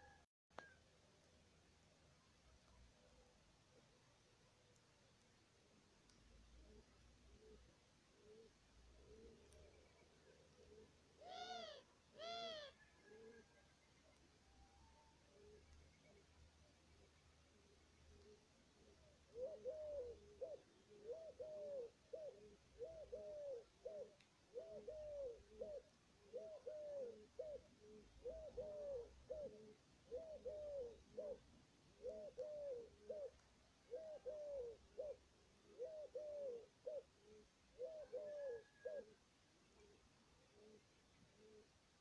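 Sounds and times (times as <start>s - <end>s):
dove cooing: 6.5s - 14.3s, 15.0s - 16.4s, 17.4s - 41.8s.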